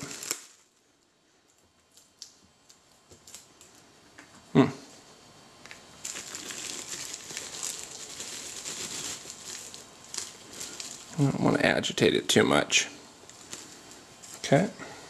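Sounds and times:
bubble wrap crinkling: 0.0 - 4.1, 5.6 - 12.0, 13.1 - 14.6.

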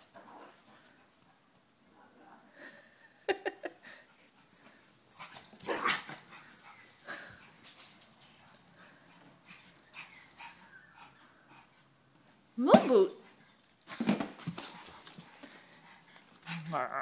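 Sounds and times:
dog barking and yipping: 5.4 - 6.2.

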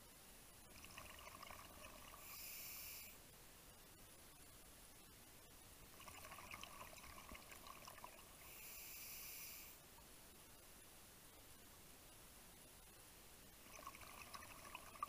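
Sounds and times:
hissing regulator inhalation: 2.1 - 3.2, 8.4 - 9.8.

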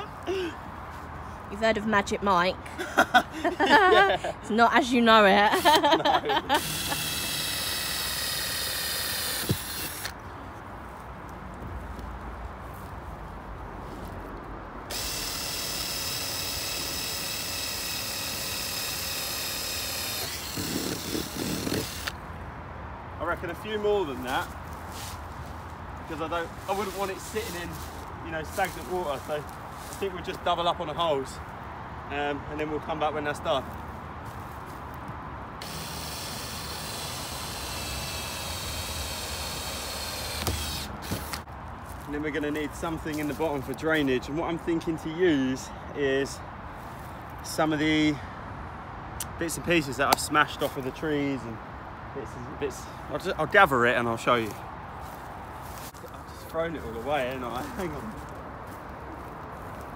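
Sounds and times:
cordless drill motor whine: 6.5 - 10.2, 14.9 - 22.2, 35.6 - 41.4.

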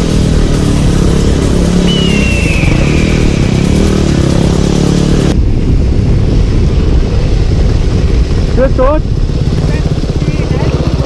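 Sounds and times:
motorcycle engine rumbling: 0.0 - 11.0
faint falling whistle: 1.8 - 4.0.

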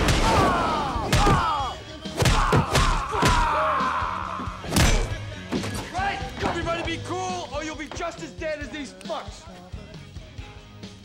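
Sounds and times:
music: 0.0 - 11.0
man screaming: 0.3 - 4.6.

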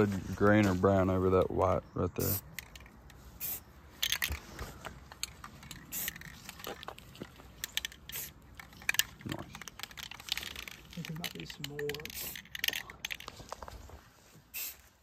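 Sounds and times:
spray paint can hissing: 2.2 - 3.6, 5.7 - 6.5, 7.7 - 8.5, 11.5 - 12.7, 14.5 - 15.0.

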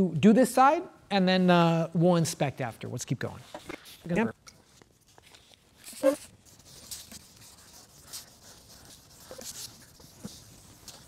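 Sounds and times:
sandpaper rubbing on plastic: 5.9 - 11.0.

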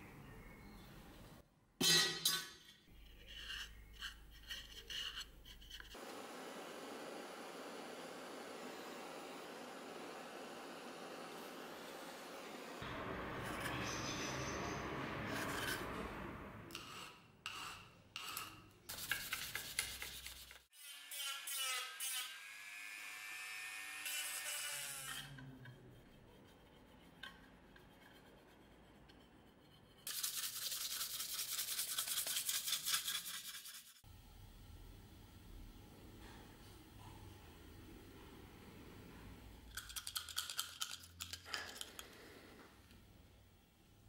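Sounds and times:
scraping on metal: 12.8 - 20.1, 25.1 - 30.1
rubbing strokes on metal: 16.8 - 20.7, 24.6 - 34.0.

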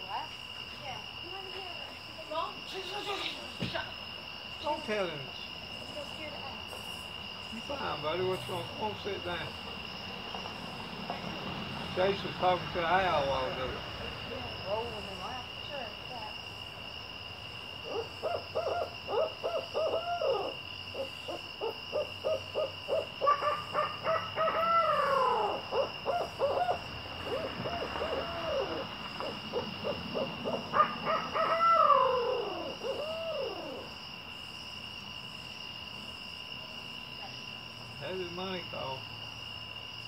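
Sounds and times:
owls hooting and wailing: 17.8 - 34.0.

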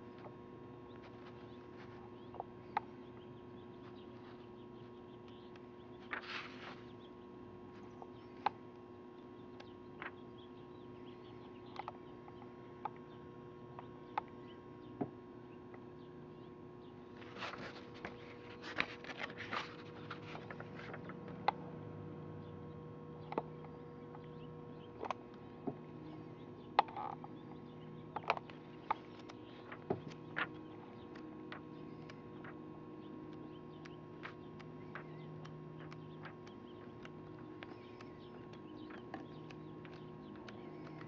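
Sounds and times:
steady electrical hum: 0.0 - 41.0
magazine pages rustling: 6.1 - 6.9, 17.2 - 21.2.

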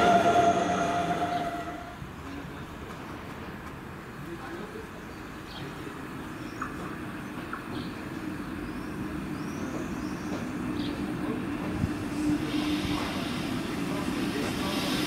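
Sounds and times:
train rumbling: 0.0 - 4.0, 6.8 - 15.0.

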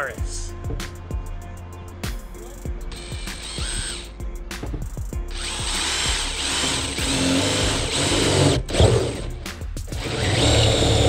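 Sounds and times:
background music: 0.0 - 11.0
cordless drill boring metal: 2.9 - 4.1, 5.3 - 11.0.

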